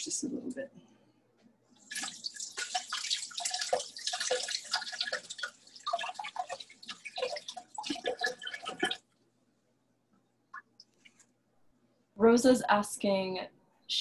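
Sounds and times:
kitchen tap running: 1.8 - 9.0
water splashing over vegetables: 1.8 - 9.0.

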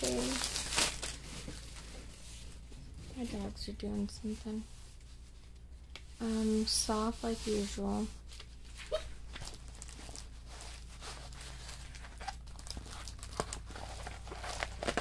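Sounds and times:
packaging rustling and crinkling: 0.0 - 3.5, 8.3 - 15.0.

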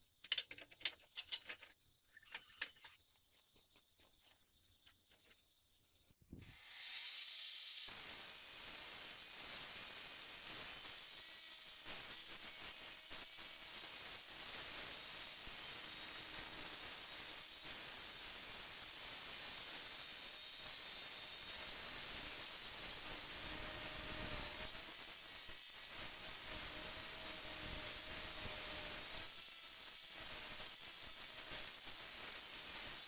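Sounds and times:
angle grinder cutting sheet steel: 6.4 - 33.0.

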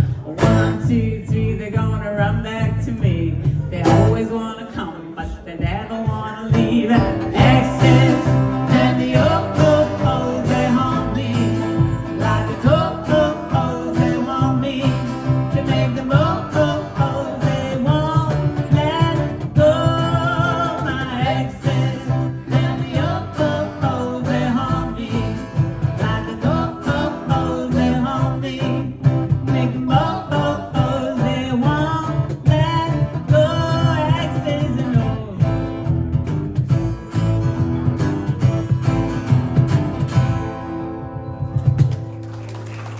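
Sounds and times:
woman singing with vibrato: 0.0 - 25.3
strummed acoustic guitars: 0.0 - 42.9
cajon beat: 0.4 - 42.9
electric lead guitar: 6.5 - 42.9.

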